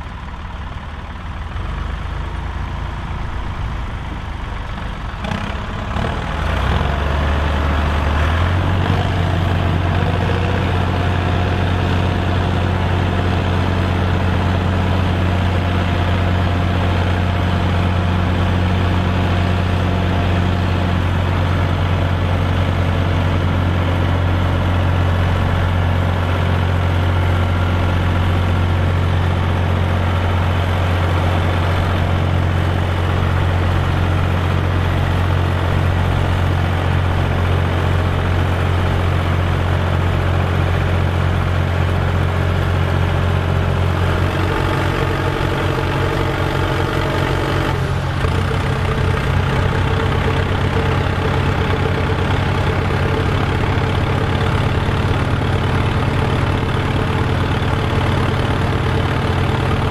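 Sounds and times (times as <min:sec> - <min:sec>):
tractor diesel engine running hard: 0:00.0 - 0:59.9.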